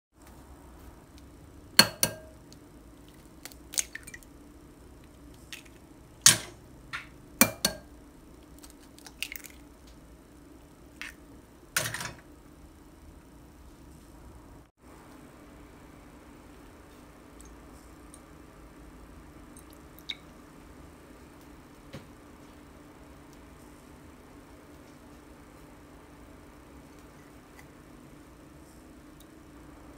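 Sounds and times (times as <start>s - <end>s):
eggs cracking on ceramic bowl: 3.1s - 4.3s.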